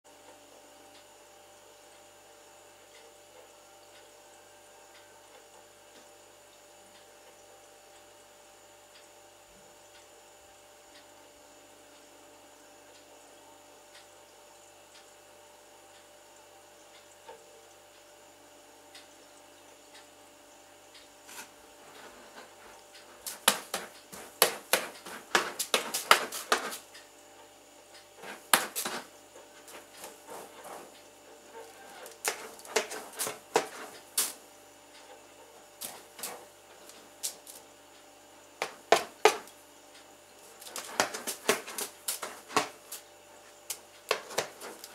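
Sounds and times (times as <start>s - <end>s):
steady electrical hum: 0.1s - 44.9s
cat scratching in litter box: 21.3s - 26.9s, 28.2s - 34.4s, 35.8s - 37.6s, 38.6s - 39.5s, 40.5s - 43.0s, 44.1s - 44.9s.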